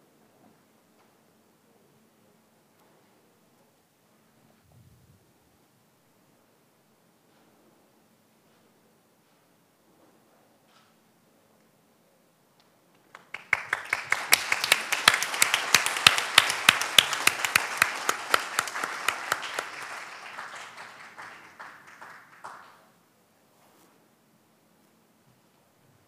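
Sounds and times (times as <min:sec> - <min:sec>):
audience applauding: 0:13.1 - 0:22.9.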